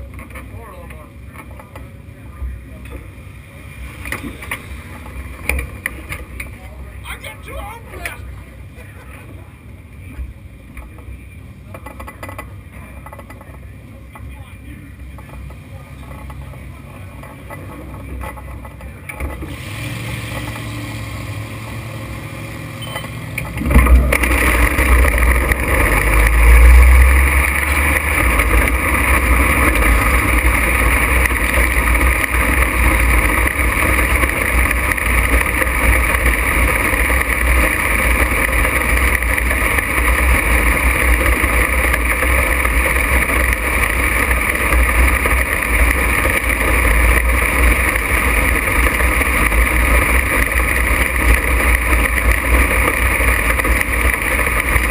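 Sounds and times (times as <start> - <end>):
race car engine: 0.0 - 54.9.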